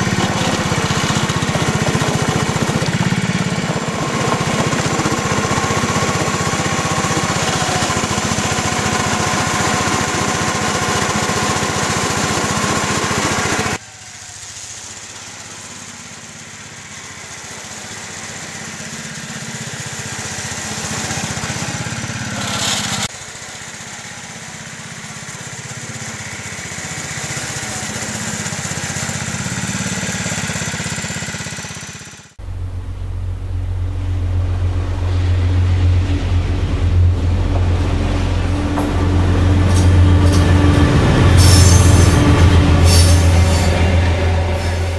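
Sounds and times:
small locomotive engine running: 0:00.0 - 0:44.9
low steady hum: 0:32.4 - 0:40.7.

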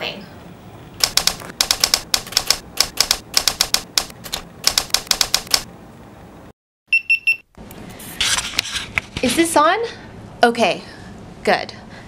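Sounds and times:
typewriter keystrokes clacking: 0:01.0 - 0:05.7.

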